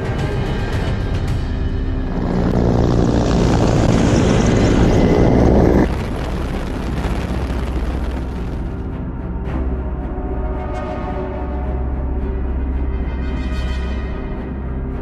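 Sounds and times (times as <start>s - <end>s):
low drone: 0.0s - 15.0s
helicopter engine and rotor: 0.8s - 5.9s.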